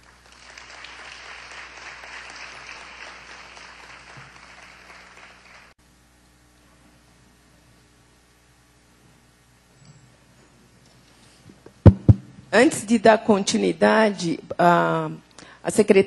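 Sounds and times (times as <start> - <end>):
audience clapping: 0.0 - 5.8.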